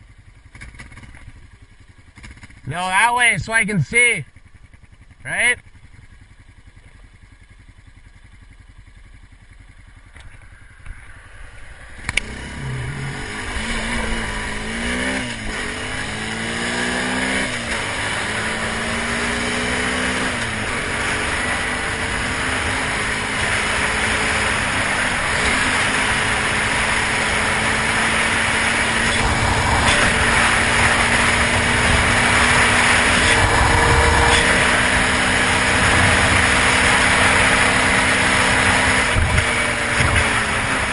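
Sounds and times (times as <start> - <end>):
atv engine accelerating: 0.0 - 40.9
wind rushing over microphone: 10.8 - 17.2, 20.2 - 40.9.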